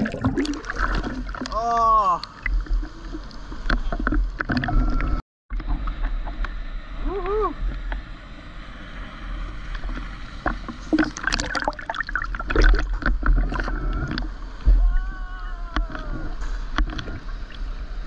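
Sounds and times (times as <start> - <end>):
seawater slapping and gurgling: 0.0 - 5.9, 9.8 - 14.9
water splashes: 0.0 - 6.4, 9.8 - 18.0.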